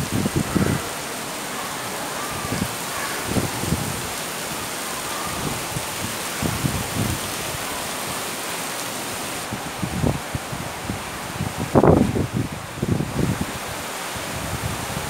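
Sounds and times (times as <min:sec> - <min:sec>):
wind buffeting microphone: 0:00.0 - 0:01.0, 0:02.3 - 0:04.2, 0:05.2 - 0:07.8, 0:09.4 - 0:15.0
heavy rain pouring: 0:00.0 - 0:15.0.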